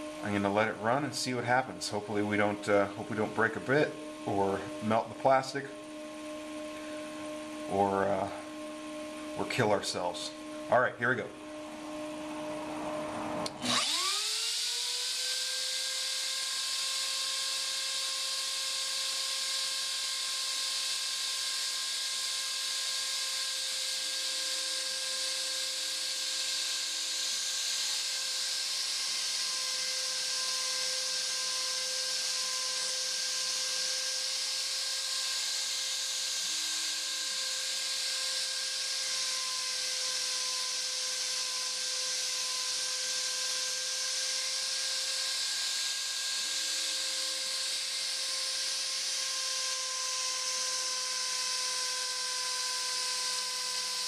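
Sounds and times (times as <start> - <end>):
motor low hum: 0.0 - 17.6
router spindle whine: 0.0 - 54.0.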